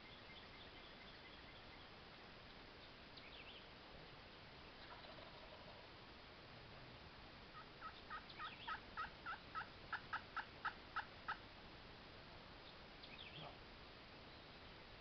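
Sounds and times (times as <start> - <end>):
small bird chirping: 2.8 - 3.7, 7.6 - 11.4, 12.6 - 13.6
wild turkey yelping: 4.8 - 5.9, 7.5 - 11.4.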